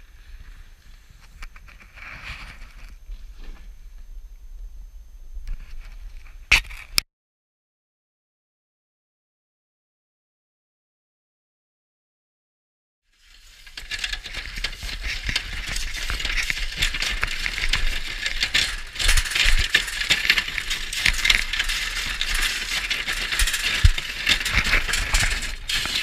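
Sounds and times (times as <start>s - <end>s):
metal hub dragging through dirt: 13.1s - 26.0s.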